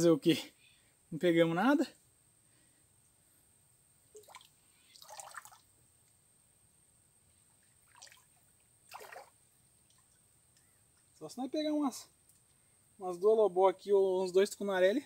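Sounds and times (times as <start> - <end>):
faint water splashes: 4.1 - 5.8, 7.6 - 10.3.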